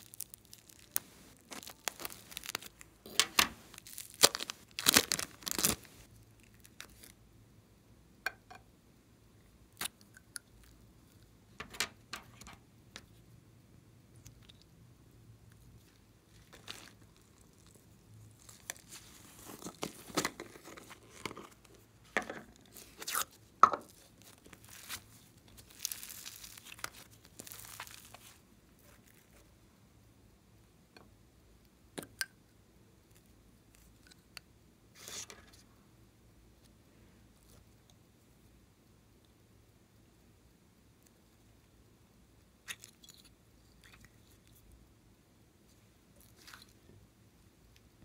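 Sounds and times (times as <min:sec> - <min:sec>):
clay tearing and crinkling: 0:00.0 - 0:07.2, 0:15.8 - 0:21.9, 0:22.5 - 0:29.5.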